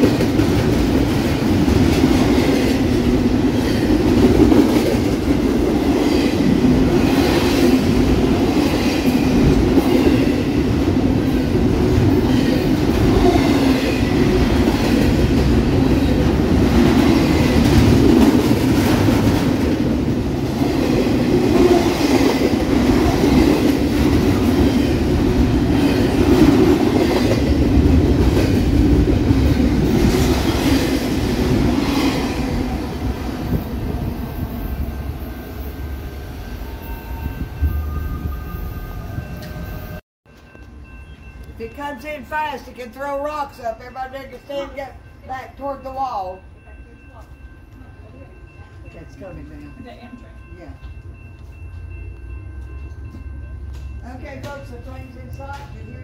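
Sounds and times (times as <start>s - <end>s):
train wheels clacking on track: 0.0s - 32.6s, 47.1s - 56.0s
freight train rumbling: 0.0s - 56.0s.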